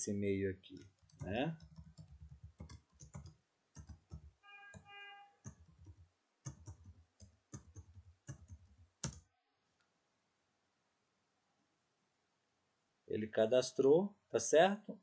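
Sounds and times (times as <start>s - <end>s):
keyboard typing clicks: 0.7s - 9.2s.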